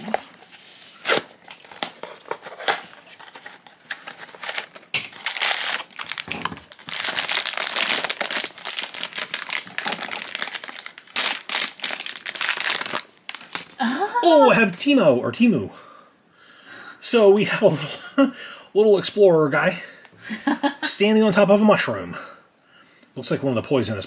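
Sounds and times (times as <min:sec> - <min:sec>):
foil bag crinkling and tearing: 0:01.0 - 0:13.8.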